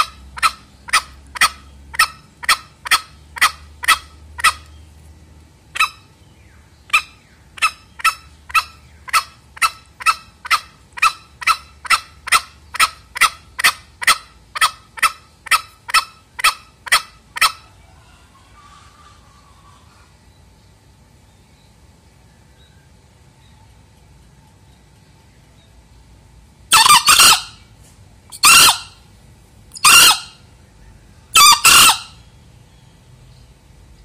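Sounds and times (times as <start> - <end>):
junglefowl calling: 0.0 - 4.8, 5.7 - 20.2, 26.7 - 29.1, 29.7 - 32.3.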